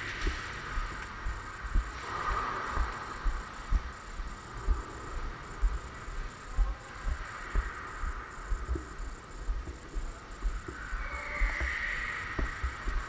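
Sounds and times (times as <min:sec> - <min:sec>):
faint steady hiss: 0:00.0 - 0:13.0
footsteps dull thumps: 0:00.2 - 0:02.0, 0:07.5 - 0:10.8, 0:11.4 - 0:13.0.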